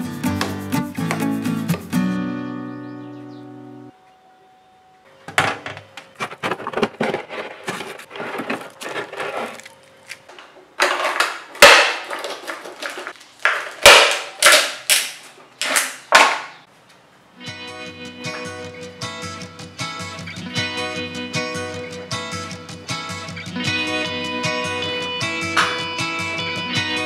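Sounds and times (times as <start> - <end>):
ice cubes rattling in plastic bottles: 6.3 - 16.0.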